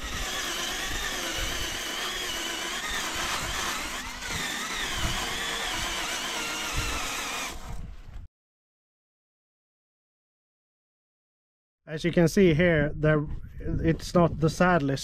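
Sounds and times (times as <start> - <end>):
power tool motor whine: 0.0 - 8.0.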